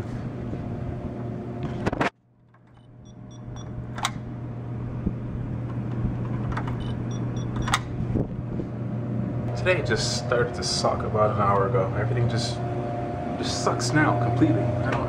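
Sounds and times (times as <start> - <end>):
steady low hum: 0.0 - 15.0
door lock quick high beeps: 6.8 - 7.8.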